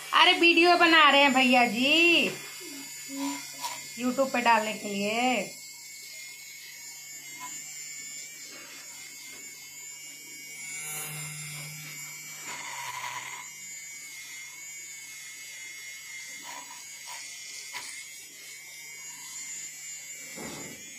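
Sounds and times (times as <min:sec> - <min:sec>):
milk frother whirring: 0:00.0 - 0:20.9.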